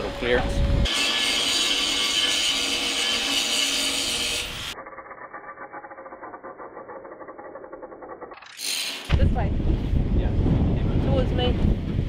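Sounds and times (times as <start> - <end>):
angle grinder grinding steel: 0.9 - 9.1.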